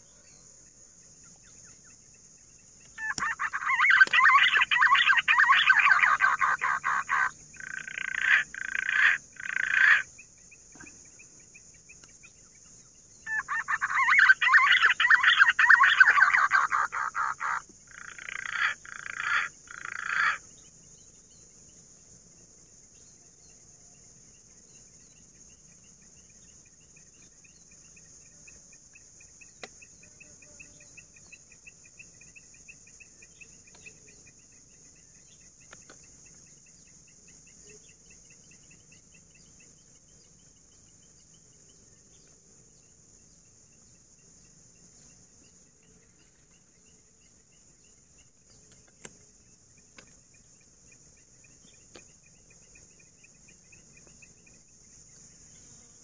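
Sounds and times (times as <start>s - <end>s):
pigeons calling in rasping notes: 2.9s - 10.1s.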